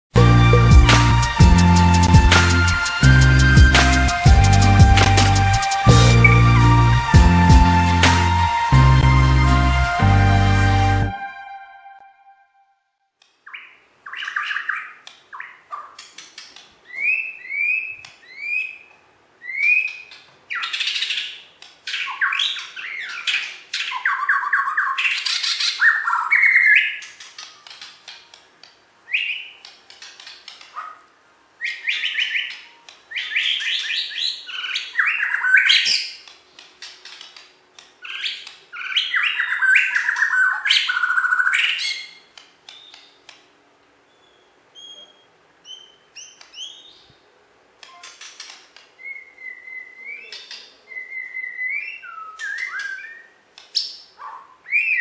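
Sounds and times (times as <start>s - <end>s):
bird whistles and trills: 16.9s - 28.2s, 29.1s - 31.0s, 31.6s - 37.3s, 38.0s - 43.2s, 44.1s - 47.1s, 47.9s - 55.0s.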